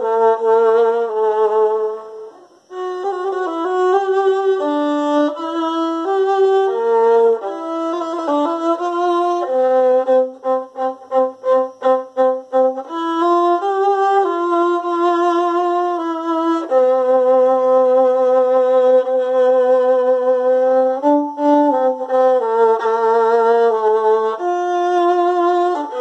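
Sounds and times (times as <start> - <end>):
solo violin melody: 0.0 - 26.0.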